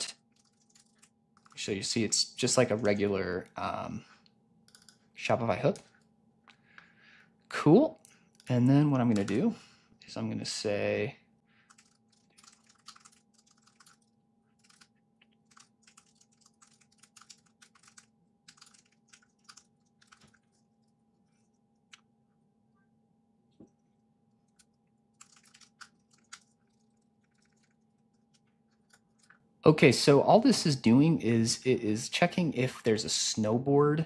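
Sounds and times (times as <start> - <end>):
typing on keyboard: 0.0 - 1.6, 4.7 - 5.0, 11.6 - 20.9, 24.5 - 29.4.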